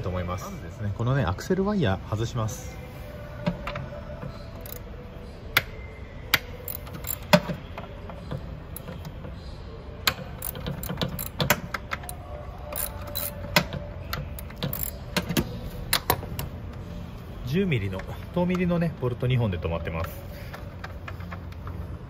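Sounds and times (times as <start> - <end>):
ratchet wrench clicking: 4.5 - 4.8, 6.3 - 7.5, 10.0 - 16.1.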